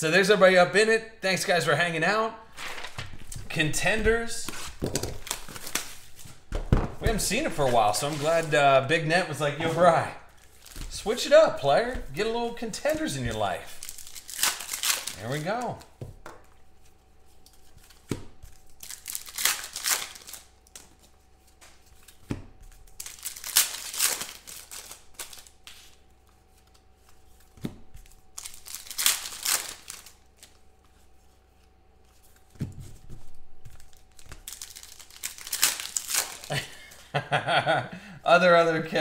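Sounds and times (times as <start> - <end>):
faint steady hum: 0.0 - 39.0
card pack wrappers tearing: 4.3 - 6.3, 7.2 - 8.6, 10.3 - 16.0, 17.5 - 20.9, 22.7 - 26.0, 28.0 - 30.6, 33.7 - 36.9.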